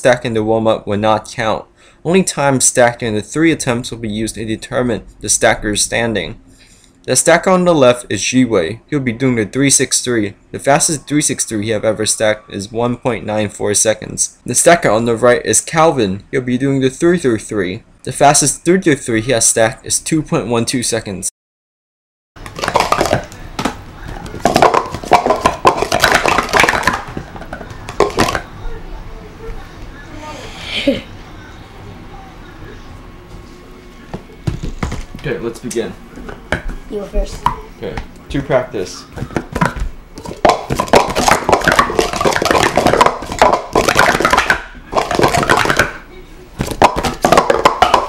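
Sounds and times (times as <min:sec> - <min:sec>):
plastic cups clattering: 0:22.4 - 0:28.5, 0:39.2 - 0:46.0, 0:46.6 - 0:48.0.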